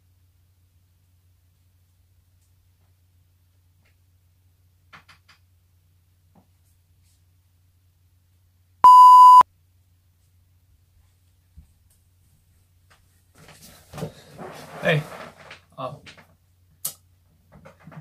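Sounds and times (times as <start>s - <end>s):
loud electronic beep: 8.8s - 9.4s.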